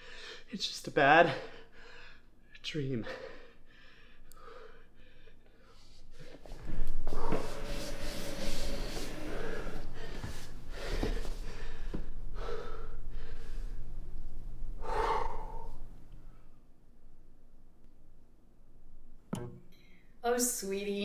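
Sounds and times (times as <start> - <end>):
steady low hum: 0.0 - 20.2
man gasping and breathing hard: 14.8 - 15.8.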